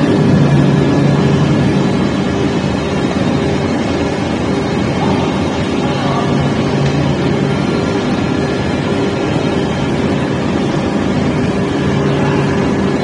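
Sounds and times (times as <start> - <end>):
low hum: 0.0 - 13.0
machine droning: 0.0 - 13.0.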